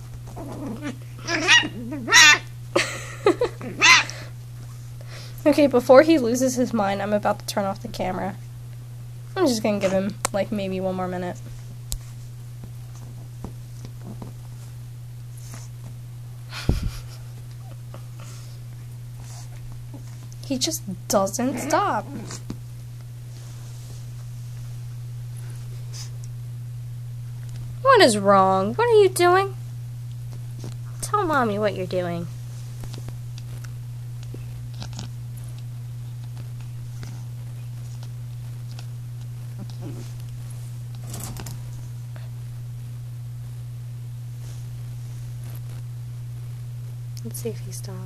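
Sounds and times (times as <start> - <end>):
steady low hum: 0.0 - 48.0
puppy throwing a tantrum: 0.4 - 2.5, 3.6 - 4.3, 21.4 - 22.4
puppy rustling on bedding: 23.2 - 26.2, 32.3 - 33.6.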